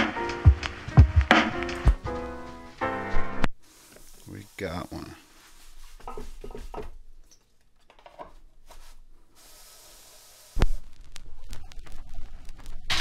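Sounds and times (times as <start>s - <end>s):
record playing: 0.0s - 3.6s, 10.6s - 13.0s
vinyl record being handled: 0.0s - 7.0s, 7.7s - 13.0s
faint hiss: 3.6s - 6.2s, 8.7s - 13.0s.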